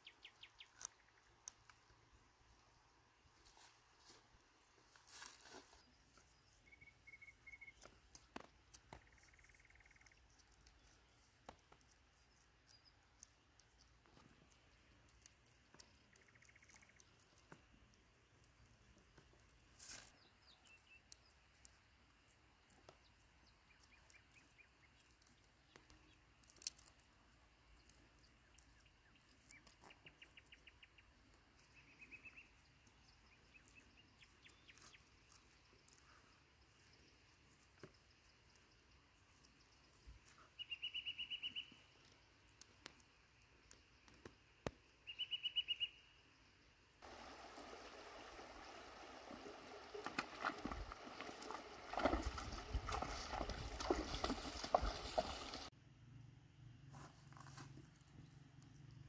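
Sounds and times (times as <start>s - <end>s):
small birds chirping: 0.0s - 1.9s, 4.9s - 55.7s
soft rustles: 3.3s - 6.2s.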